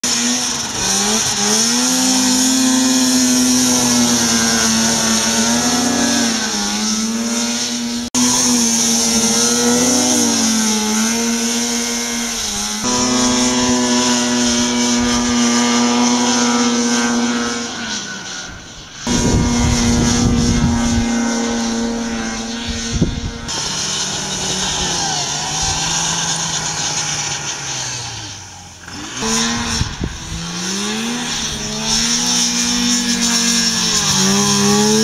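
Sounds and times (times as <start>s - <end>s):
snowmobile engine at high revs: 0.0s - 35.0s.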